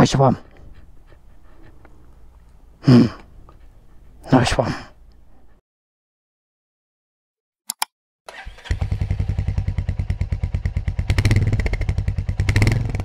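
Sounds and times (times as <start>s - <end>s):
quick clicks: 7.7s - 7.9s
motorcycle engine starting and idling: 8.3s - 13.0s.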